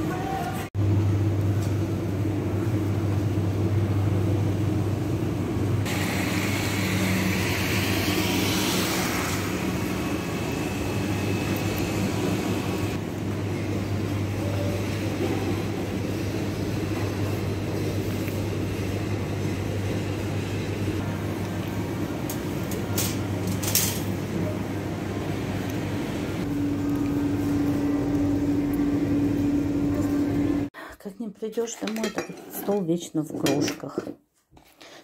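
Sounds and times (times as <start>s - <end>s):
refrigeration and ventilation hum: 0.0s - 35.0s
shopping cart rolling: 22.6s - 24.2s.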